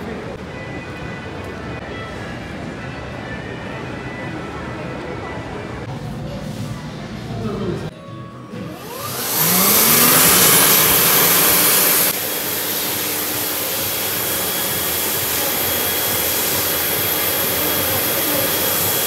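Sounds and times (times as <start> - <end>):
electric hand dryer blowing: 8.7 - 19.0.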